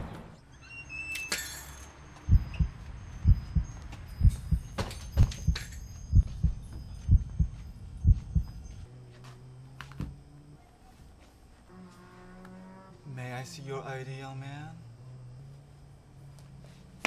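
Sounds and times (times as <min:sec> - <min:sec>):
heartbeat double thumps: 0:02.2 - 0:08.8.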